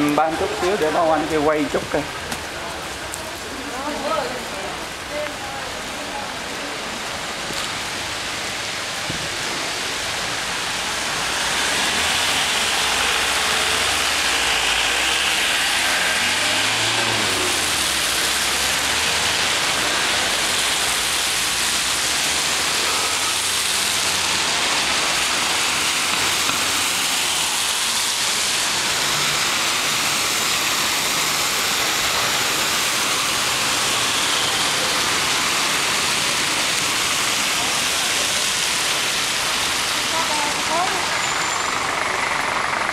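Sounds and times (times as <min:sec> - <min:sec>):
rain and tyres hissing on wet road: 0:00.0 - 0:42.9
passing car engines: 0:07.0 - 0:42.9
coach engine: 0:10.7 - 0:42.9.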